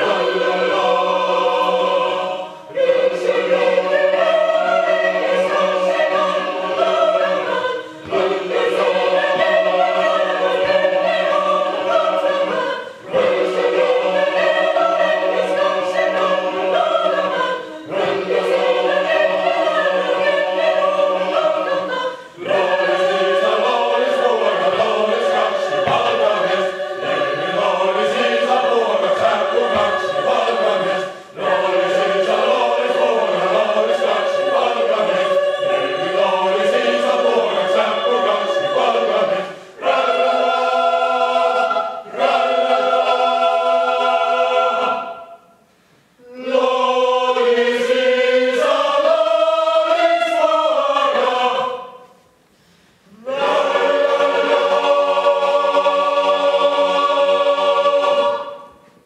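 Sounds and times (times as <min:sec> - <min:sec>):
choir singing a cappella: 0:00.0 - 0:59.0.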